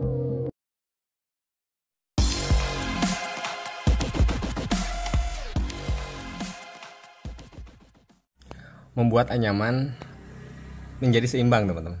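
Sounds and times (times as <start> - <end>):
electronic dance music: 2.2 - 8.1.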